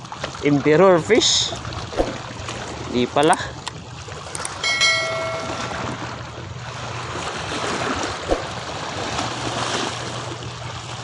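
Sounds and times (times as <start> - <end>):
water lapping against shore: 0.0 - 11.0
bell-like ding: 4.6 - 6.2.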